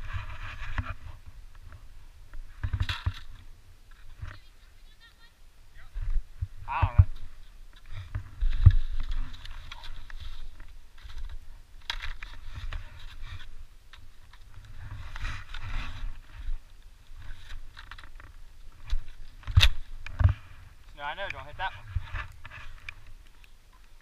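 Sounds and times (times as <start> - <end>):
ski pole tips crunching: 2.4 - 4.4, 6.8 - 24.0
wind rumble on microphone: 5.8 - 23.3
skis scraping over snow: 14.4 - 17.8.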